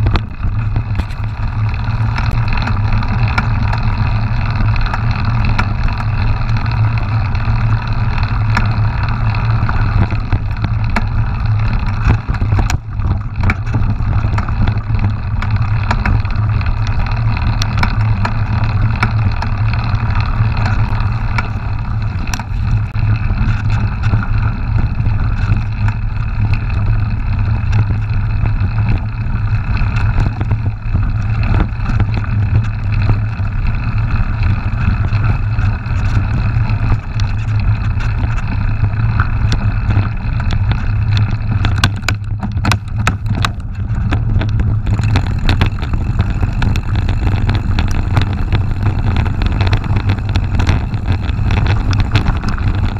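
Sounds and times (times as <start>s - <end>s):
bike clicks and rattles: 0.0s - 52.9s
bike tyres rolling on dirt: 0.0s - 52.9s
wind rumble on microphone: 0.0s - 52.9s.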